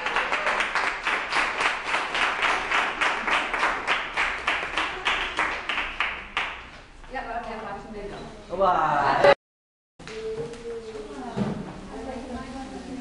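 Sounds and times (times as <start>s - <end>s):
audience clapping in unison: 0.0s - 6.9s.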